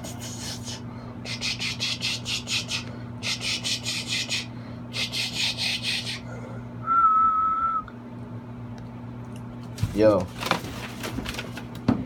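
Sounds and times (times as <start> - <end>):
person whistling a steady note: 6.8 - 8.0.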